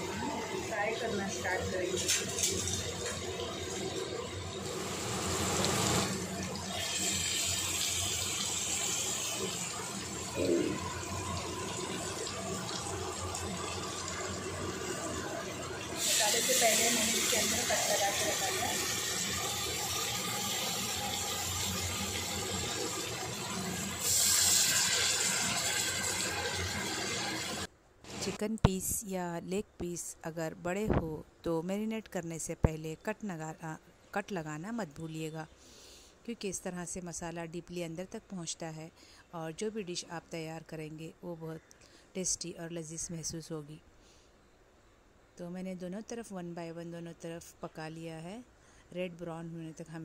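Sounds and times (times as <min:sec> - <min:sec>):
chicken sizzling in a pan: 0:02.0 - 0:27.7.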